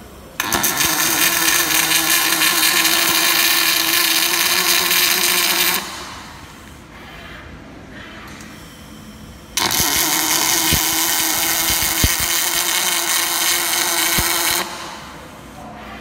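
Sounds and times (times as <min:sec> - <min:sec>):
welding arc crackling hiss: 0:00.0 - 0:06.7, 0:09.6 - 0:15.3
sharp welding pops: 0:00.4 - 0:06.3, 0:09.6 - 0:15.0.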